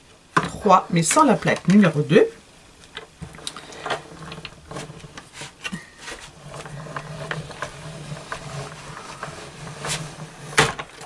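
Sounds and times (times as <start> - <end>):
hand-cranked machine drone: 3.2 - 11.0.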